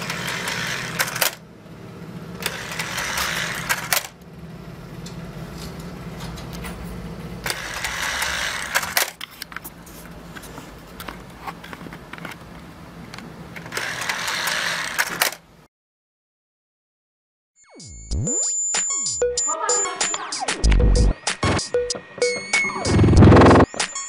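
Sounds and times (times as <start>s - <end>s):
plastic parts clicking and clattering: 0.0s - 1.4s, 13.6s - 15.4s
small motor and gears whirring: 0.0s - 1.4s, 2.4s - 4.2s, 7.4s - 9.4s, 13.6s - 15.4s.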